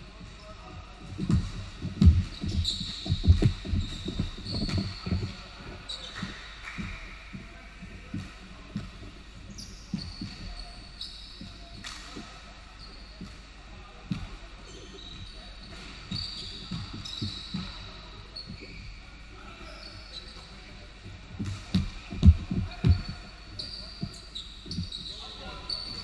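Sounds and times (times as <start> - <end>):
sneaker squeaks: 0.4 - 26.0
players' footfalls: 1.0 - 9.1, 21.3 - 25.2
basketball bouncing on hardwood: 1.2 - 5.3, 21.4 - 23.2.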